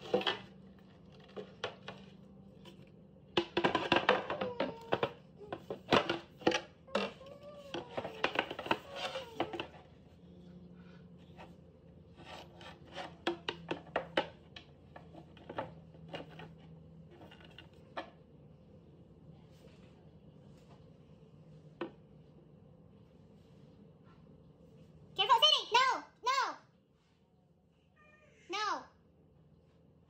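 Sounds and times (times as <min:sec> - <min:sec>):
wooden panels knocking and scraping: 0:03.3 - 0:09.8.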